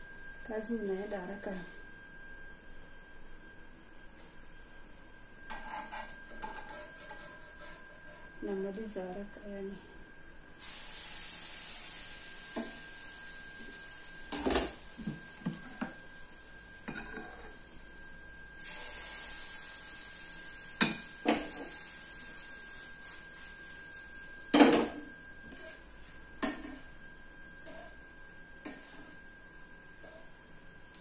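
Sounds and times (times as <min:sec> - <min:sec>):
faint steady whine: 0:00.0 - 0:31.0
batter sizzling in pan: 0:10.6 - 0:31.0
utensils clinking on metal pans: 0:16.8 - 0:17.5.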